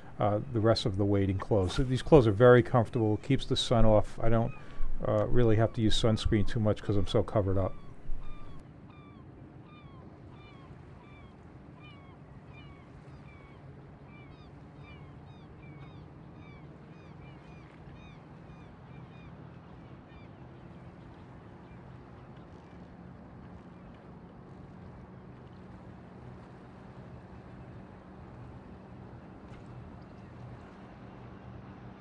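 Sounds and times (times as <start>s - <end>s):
faint low hum: 0.0s - 8.6s
hiss of wind and water: 0.0s - 8.6s
bird chirping: 1.6s - 8.6s.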